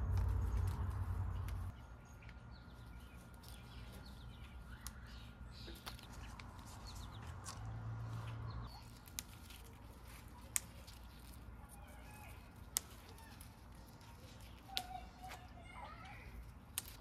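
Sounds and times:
low rumble: 0.0 - 1.8
small birds chirping: 0.0 - 17.0.

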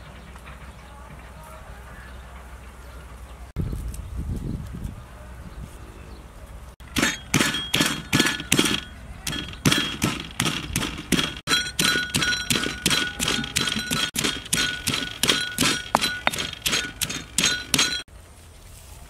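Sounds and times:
stone pestle pounding in mortar: 6.8 - 18.1.

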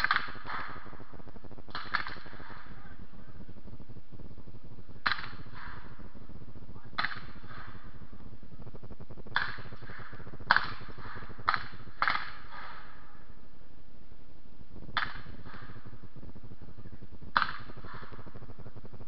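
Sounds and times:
gunshots with echo: 0.0 - 3.1, 4.9 - 8.4, 9.3 - 13.5, 14.9 - 16.2, 17.3 - 18.8.

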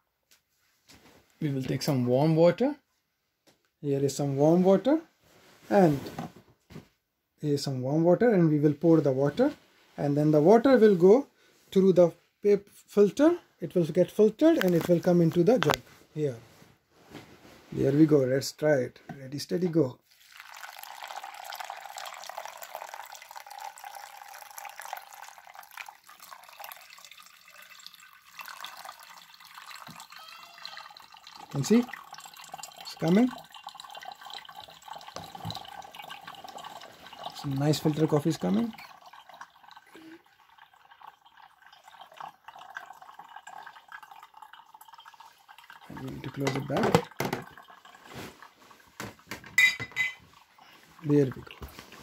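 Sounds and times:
water pouring onto coffee grounds: 20.0 - 49.2, 50.3 - 52.0.

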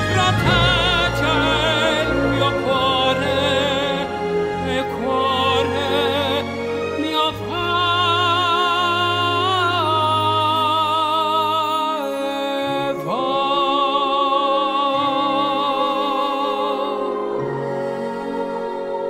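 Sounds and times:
sustained low accompaniment: 0.0 - 8.0
man singing operatically: 0.0 - 17.3.

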